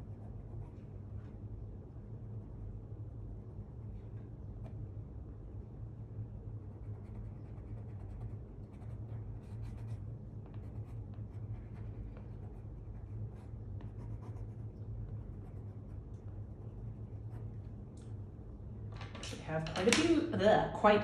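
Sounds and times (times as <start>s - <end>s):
steady low hum: 0.0s - 21.0s
pencil scratching on wet paper: 6.6s - 16.1s.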